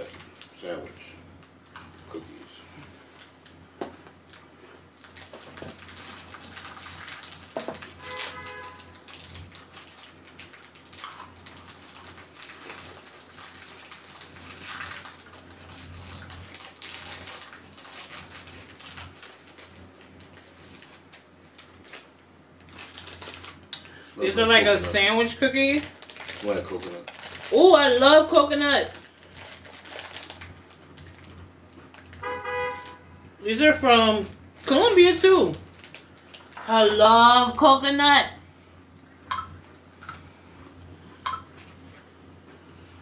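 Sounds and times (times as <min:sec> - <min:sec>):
plastic wrappers crinkling: 0:00.0 - 0:00.6, 0:01.4 - 0:03.6, 0:04.2 - 0:33.0, 0:34.2 - 0:37.1.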